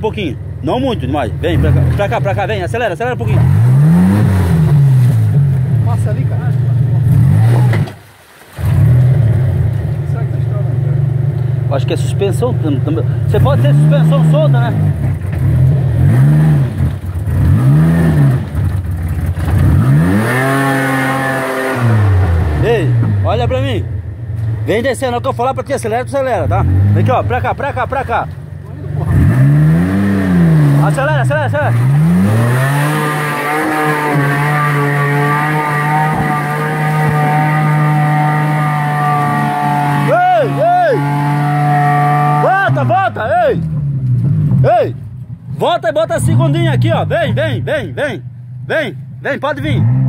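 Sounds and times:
off-road vehicle engine revving: 0.0 - 8.0, 8.6 - 50.0.

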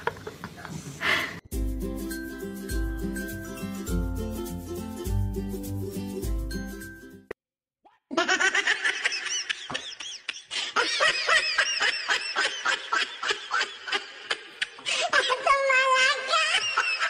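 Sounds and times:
rapid high-pitched laughter: 15.1 - 17.0.

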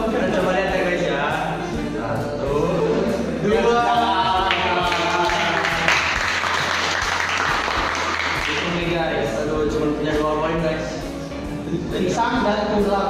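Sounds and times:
hands clapping: 4.5 - 9.0.

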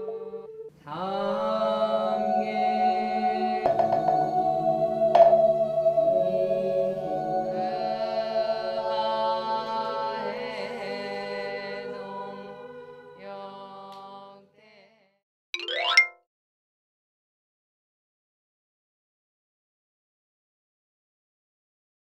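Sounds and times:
soft background music: 2.1 - 13.1
upward sweeping sound effect: 15.6 - 16.2.

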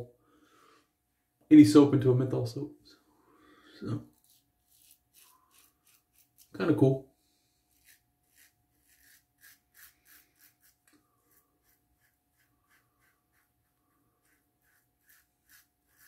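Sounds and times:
razor scraping stubble: 4.1 - 6.6, 7.7 - 16.0.

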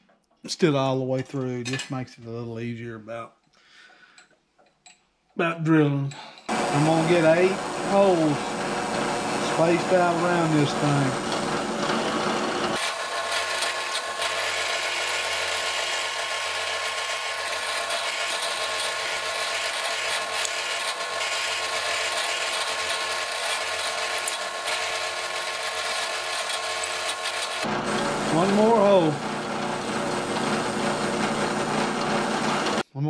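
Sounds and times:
drill bit boring into wood: 6.5 - 32.8
drill press motor running: 6.5 - 32.8.

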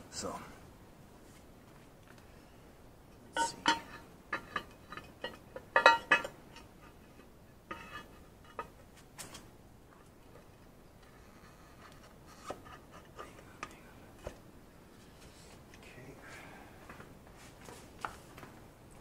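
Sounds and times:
metal tools clinking: 3.3 - 6.4.

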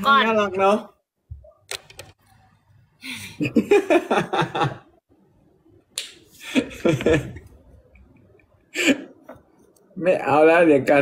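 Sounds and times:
people laughing hard: 3.4 - 4.9.

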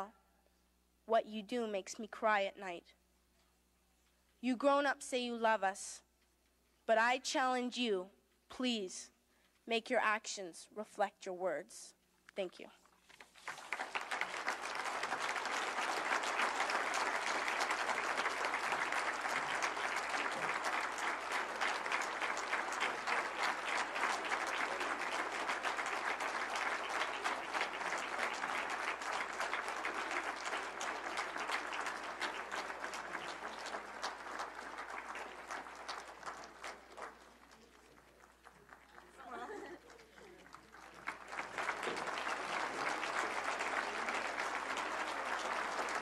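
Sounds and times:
audience applauding: 13.2 - 46.0.

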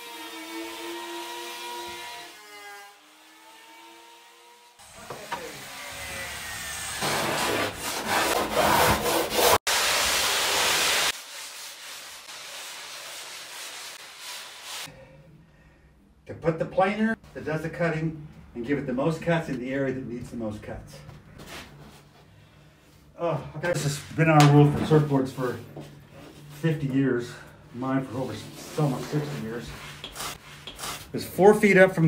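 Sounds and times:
sanding block scraping foam: 6.9 - 14.9, 28.2 - 31.1.

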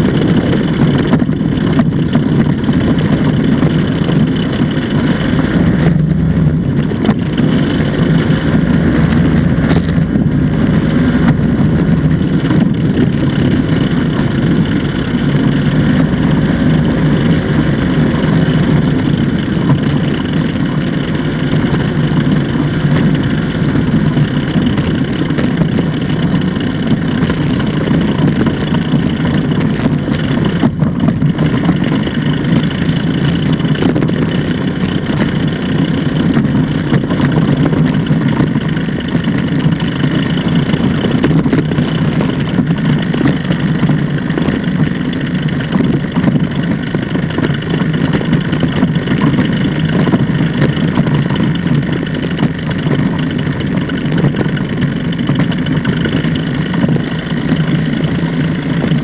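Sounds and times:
engine and propeller running: 0.0 - 59.0.

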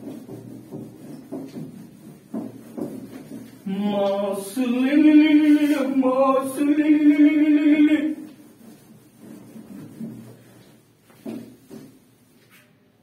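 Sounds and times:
man singing held notes: 3.7 - 8.3.

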